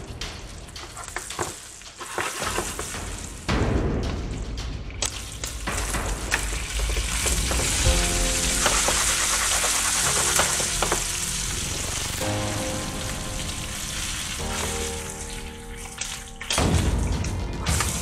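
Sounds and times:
faint background music: 0:00.0 - 0:18.0
meat sizzling in a frying pan: 0:07.5 - 0:12.2.

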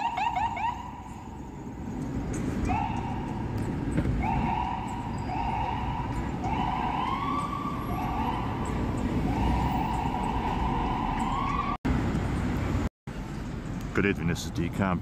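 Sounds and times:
emergency vehicle siren: 0:00.0 - 0:11.9
city traffic rumble: 0:00.0 - 0:15.0.

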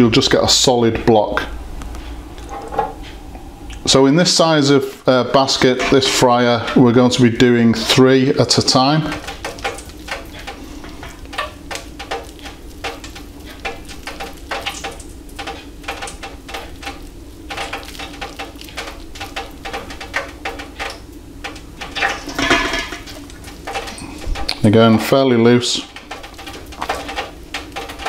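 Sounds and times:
steady low hum: 0:00.0 - 0:28.0
clicks and crackles of batter: 0:05.6 - 0:28.0
wet hands squelching batter: 0:08.4 - 0:28.0.

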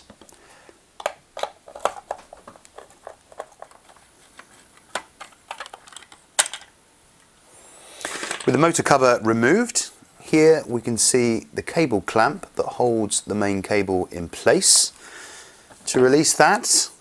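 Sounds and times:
plastic cover being handled: 0:01.0 - 0:06.7.

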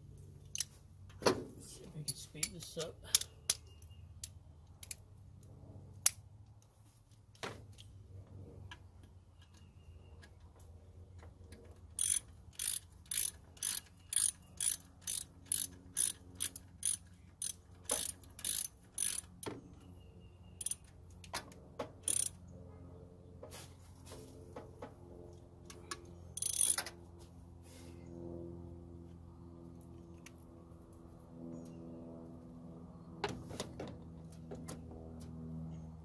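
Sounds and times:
ratchet wrench clicking: 0:12.0 - 0:19.4, 0:20.6 - 0:20.9, 0:22.0 - 0:22.4, 0:26.4 - 0:26.9.

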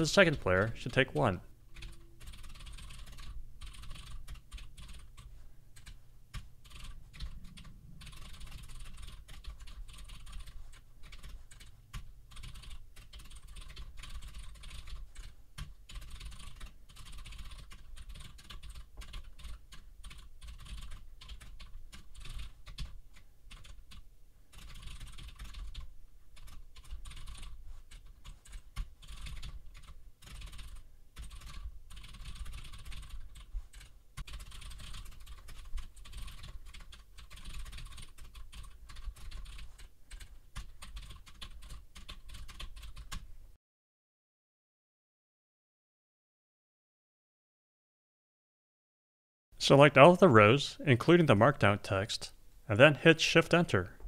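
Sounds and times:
fast typing on computer keyboard: 0:01.7 - 0:43.3.

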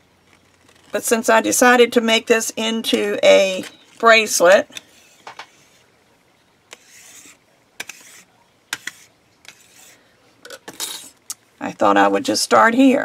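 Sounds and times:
tool scraping over tile: 0:06.7 - 0:10.0.

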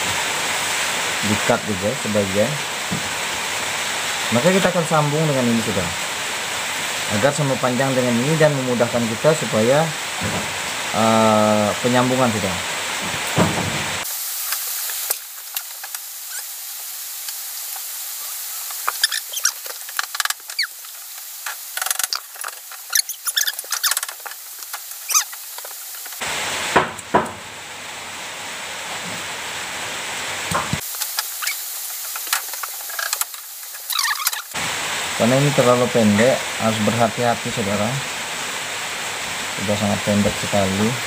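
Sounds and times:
steady hiss: 0:00.0 - 0:41.0
hands handling wire crackling: 0:17.2 - 0:26.2, 0:30.8 - 0:34.4.

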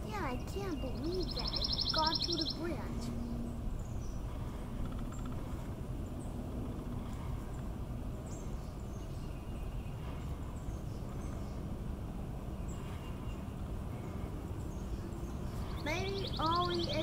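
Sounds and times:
steady low rumble: 0:00.0 - 0:17.0
bird chirps: 0:00.2 - 0:05.3, 0:12.5 - 0:17.0.

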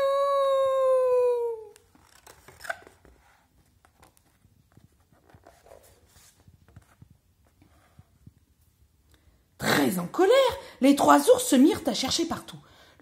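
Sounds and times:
page turning: 0:01.7 - 0:07.2
pop-up book rustling and tapping: 0:01.8 - 0:07.6.

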